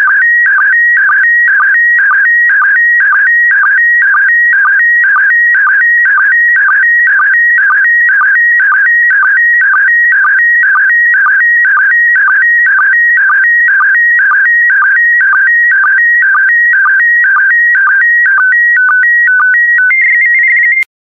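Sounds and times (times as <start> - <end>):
high-pitched electronic tones: 19.3 - 20.9.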